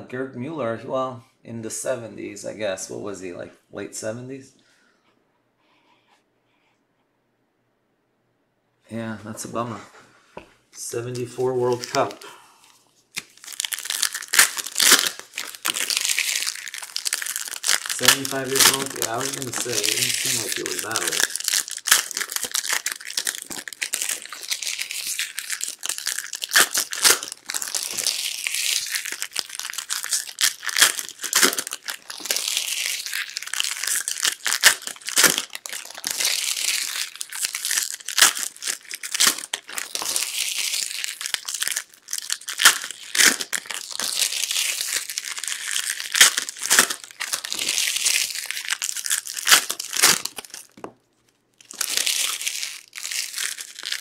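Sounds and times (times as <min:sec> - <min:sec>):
card pack wrappers crinkling and tearing: 0:11.0 - 0:54.0.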